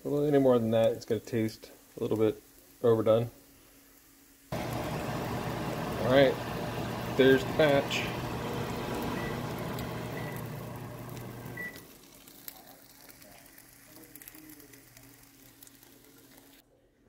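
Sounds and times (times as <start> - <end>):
bread sizzling in a frying pan: 0.1 - 16.6
faint crackles: 3.9 - 16.6
low hum: 4.6 - 11.8.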